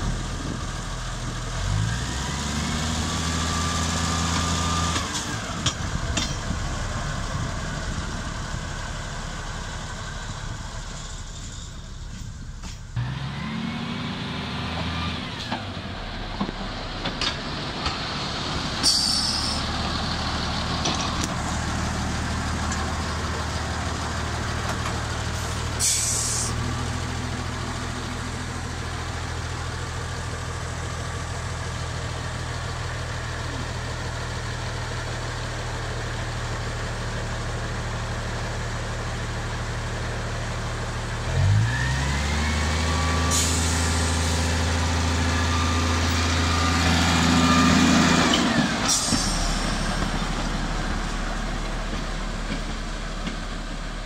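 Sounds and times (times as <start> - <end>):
locomotive diesel engine running: 0.0 - 54.0
air brake hisses: 18.8 - 19.7, 25.4 - 26.6, 43.3 - 44.4, 48.8 - 50.0.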